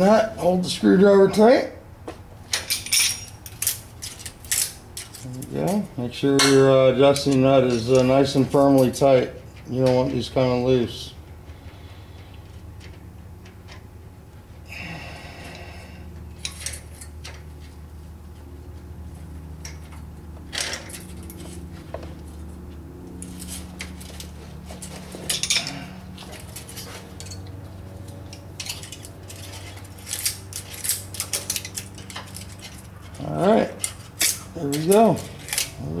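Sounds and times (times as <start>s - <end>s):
steady low hum: 0.0s - 36.0s
metal tools clinking on engine: 2.5s - 11.1s, 14.9s - 17.7s, 19.6s - 21.9s, 23.2s - 35.9s.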